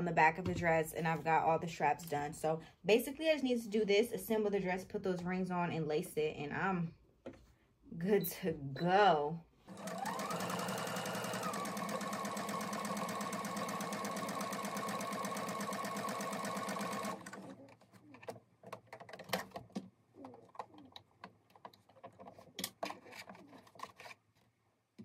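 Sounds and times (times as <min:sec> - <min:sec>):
sewing machine stitching: 0:09.7 - 0:17.6
handling clicks and rustles: 0:17.6 - 0:24.6.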